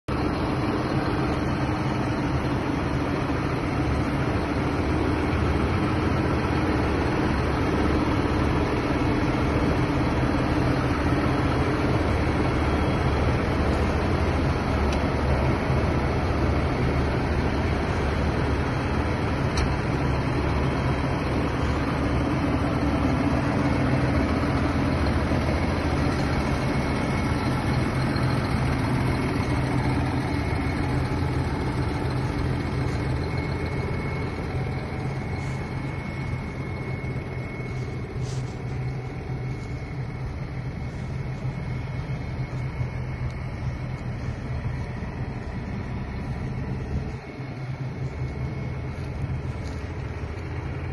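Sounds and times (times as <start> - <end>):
tractor diesel engine running: 0.0 - 50.9.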